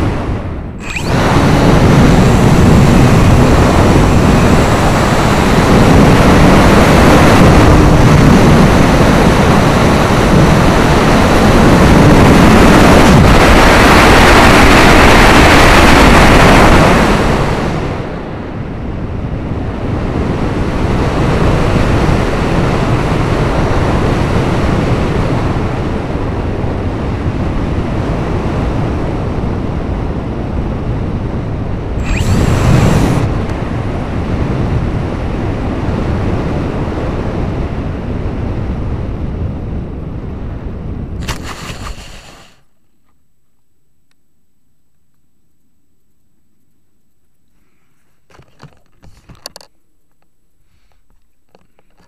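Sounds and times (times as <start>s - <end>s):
rushing airflow over microphone: 0.0s - 18.2s, 30.1s - 42.7s
faint hum: 0.0s - 52.0s.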